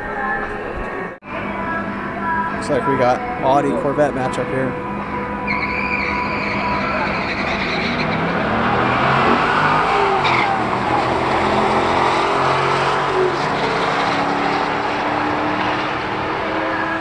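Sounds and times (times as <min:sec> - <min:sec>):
cars accelerating hard: 0:04.0 - 0:17.0.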